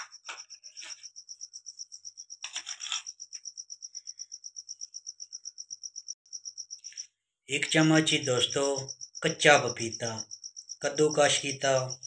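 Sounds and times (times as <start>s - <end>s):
insect chirping: 0.0s - 12.0s
metal spoon scraping dish: 2.5s - 3.2s.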